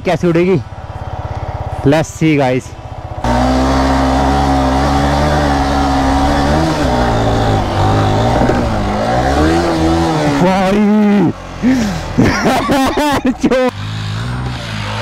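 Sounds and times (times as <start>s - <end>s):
motorcycle engine revving: 0.4s - 15.0s
sharp throttle bursts: 3.2s - 10.8s.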